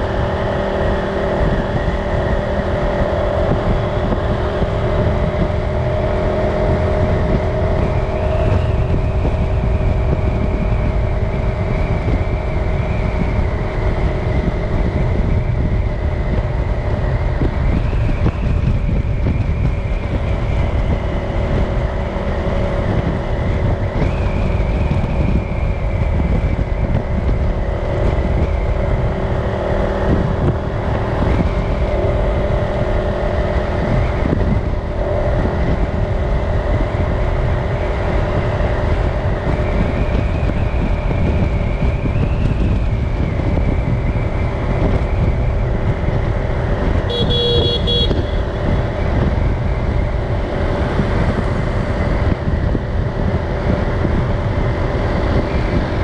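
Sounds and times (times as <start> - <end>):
street traffic engines: 0.0 - 56.0
vehicle horn: 47.1 - 48.6.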